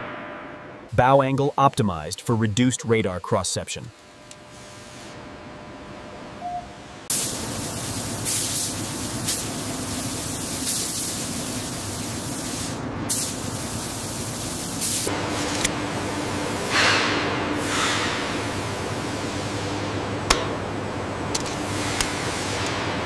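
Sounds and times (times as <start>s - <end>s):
paint spray gun hissing: 7.1s - 15.1s.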